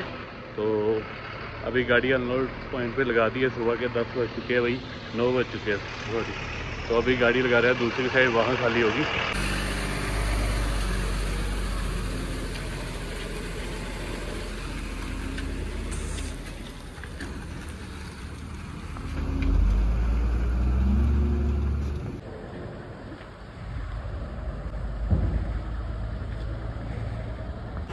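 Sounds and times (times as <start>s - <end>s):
lorry diesel engine: 0.0s - 27.9s.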